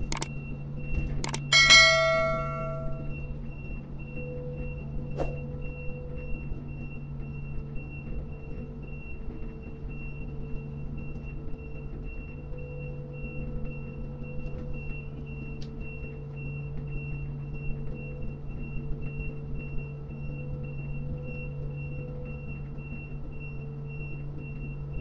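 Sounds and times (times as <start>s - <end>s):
sharp click: 0.0s - 0.3s, 1.2s - 3.0s
crane machinery humming: 0.0s - 25.0s
high-pitched warning beep: 1.2s - 3.3s.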